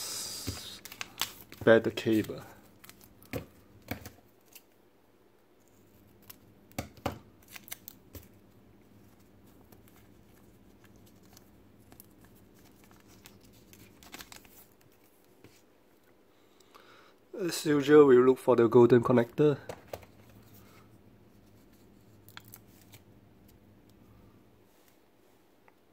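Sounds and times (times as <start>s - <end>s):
plastic bag crinkling and tearing: 0.6s - 3.2s, 7.4s - 8.3s, 10.0s - 15.0s.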